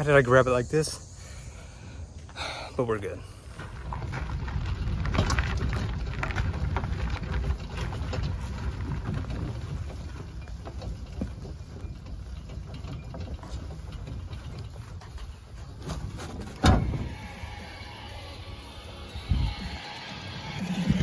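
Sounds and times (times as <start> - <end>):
hand truck rumbling over gravel: 2.4 - 21.0
rattles and clicks: 3.5 - 17.7.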